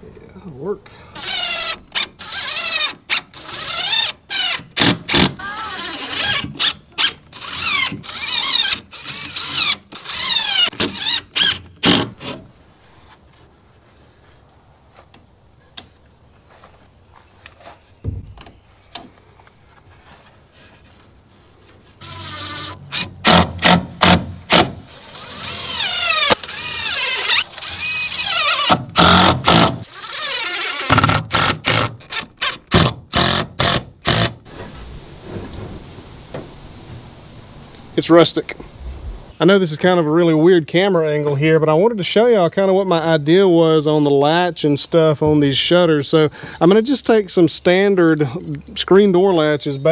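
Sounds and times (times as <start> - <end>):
cordless drill driving screws: 1.2 - 12.1, 22.0 - 34.4
faint steady hiss: 34.5 - 40.2.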